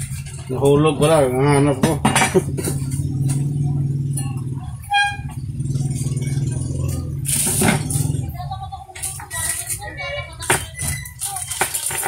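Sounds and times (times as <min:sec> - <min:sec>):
low motor hum: 0:00.0 - 0:08.7
loud rustling scrape: 0:07.2 - 0:08.3.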